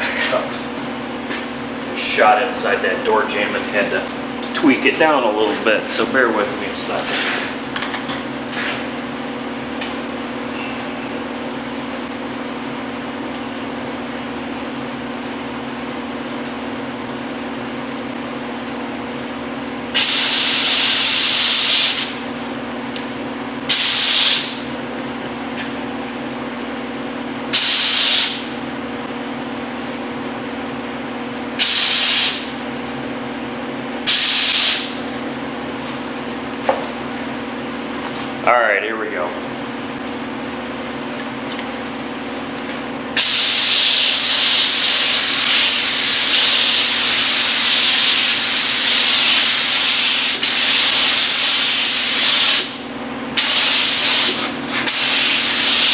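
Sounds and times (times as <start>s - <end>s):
paint spray gun hissing: 27.6s - 28.4s, 31.6s - 32.4s, 34.1s - 34.9s, 43.2s - 52.8s, 53.4s - 55.9s.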